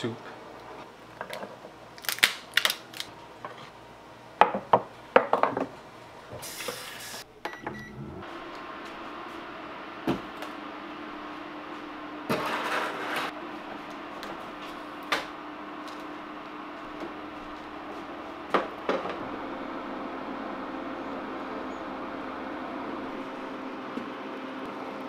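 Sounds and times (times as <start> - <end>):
cooling fan humming: 0.0 - 25.0
cooktop beep: 7.4 - 8.2.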